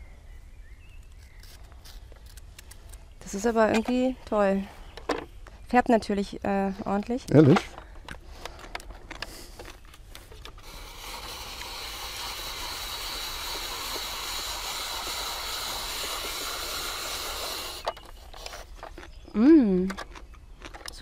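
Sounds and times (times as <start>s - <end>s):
spiralizer shredding hiss: 10.6s - 17.9s.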